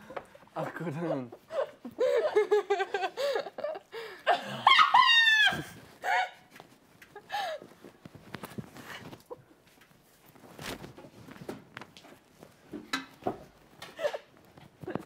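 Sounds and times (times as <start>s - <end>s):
people laughing: 0.7s - 5.0s
high-pitched squeal of laughter: 4.3s - 6.4s
faint clicks and rustles: 5.4s - 15.0s.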